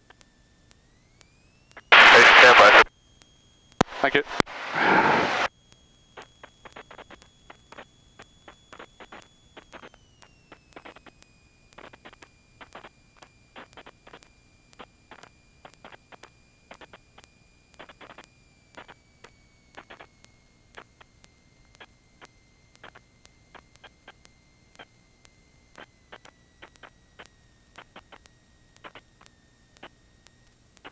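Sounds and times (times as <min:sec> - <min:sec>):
faint electrical whine: 0:00.0 - 0:30.9
crackling clicks: 0:00.7 - 0:21.9.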